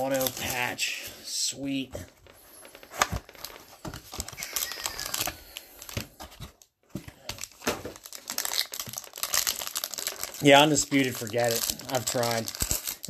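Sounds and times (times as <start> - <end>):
foil pack crinkling: 0.0 - 0.8, 2.2 - 6.6, 7.2 - 13.0.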